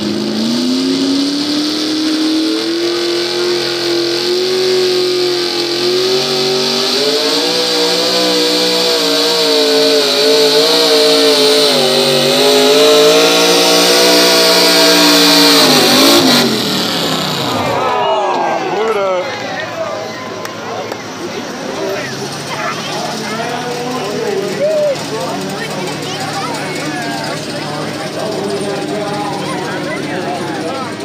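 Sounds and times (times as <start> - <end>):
truck engine at high revs: 0.0 - 19.2, 20.4 - 31.0.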